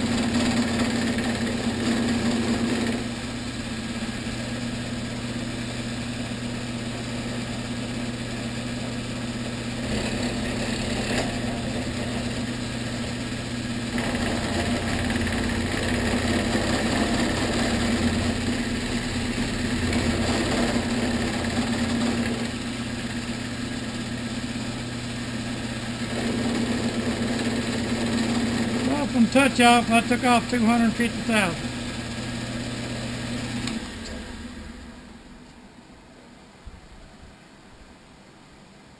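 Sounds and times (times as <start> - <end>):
milling machine motor hum: 0.0 - 35.5.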